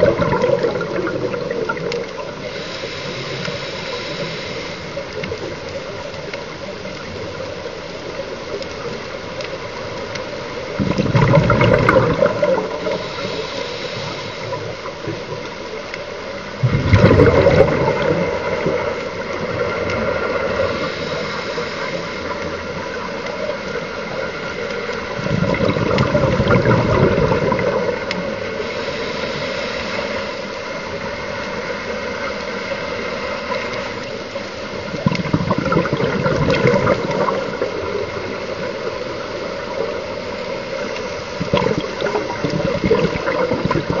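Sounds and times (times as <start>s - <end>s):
exhaled bubbles bursting: 0.0s - 2.4s, 10.8s - 13.0s, 16.6s - 20.7s, 25.1s - 28.2s, 34.8s - 38.7s, 41.4s - 44.0s
underwater regulator gurgling: 0.0s - 7.5s, 10.2s - 15.6s, 16.6s - 30.2s, 33.0s - 44.0s.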